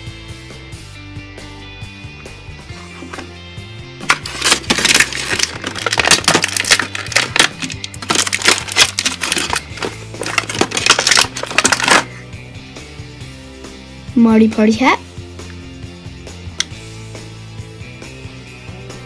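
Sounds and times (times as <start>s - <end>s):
background music: 0.0s - 19.0s
plastic packaging crinkling: 4.1s - 12.1s.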